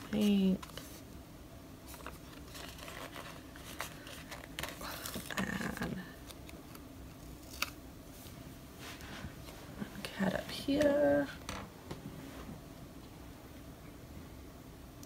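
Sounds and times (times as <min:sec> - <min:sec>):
paper rustling and scraping: 0:00.0 - 0:01.0, 0:01.9 - 0:09.6.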